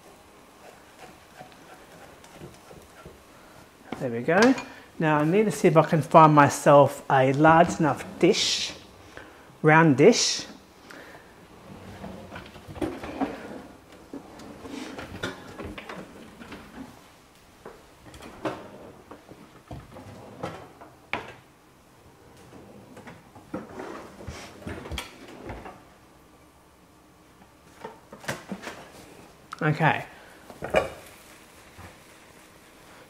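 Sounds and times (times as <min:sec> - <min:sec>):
cupboard doors and drawers shutting: 0:07.5 - 0:08.9, 0:11.5 - 0:17.0, 0:18.0 - 0:21.4, 0:22.2 - 0:25.9.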